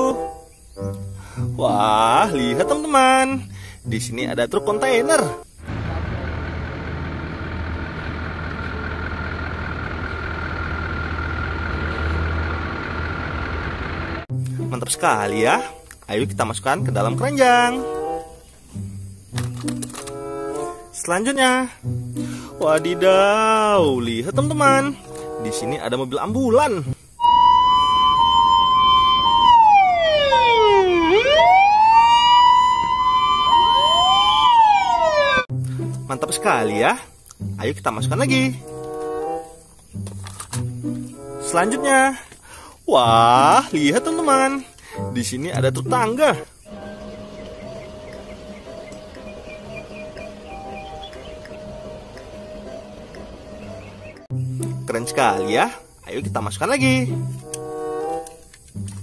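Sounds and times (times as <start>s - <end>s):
diesel truck engine running: 5.6s - 14.3s, 46.7s - 54.3s
faint second siren: 27.2s - 35.5s, 46.7s - 54.3s
fire engine siren wailing: 27.2s - 35.5s.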